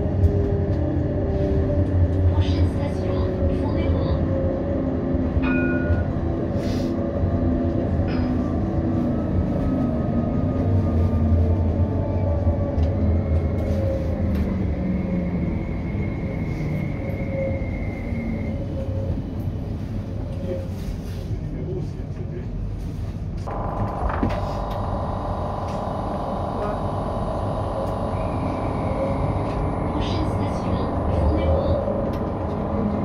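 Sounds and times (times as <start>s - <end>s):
tram wheels rumbling on rail: 0.0s - 33.0s
traction motor hum: 23.5s - 33.0s.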